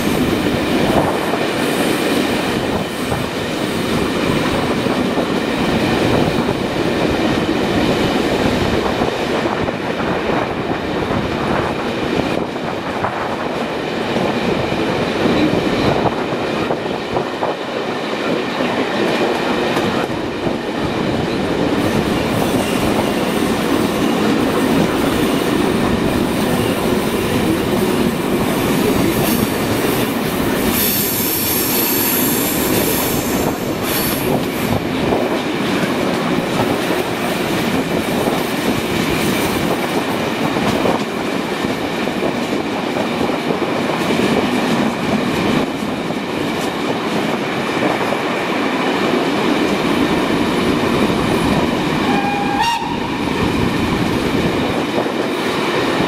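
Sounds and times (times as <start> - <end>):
train wheels rolling on rails: 0.0 - 56.0
wind: 0.0 - 56.0
steam hiss: 30.7 - 34.8
train whistle: 52.0 - 53.3.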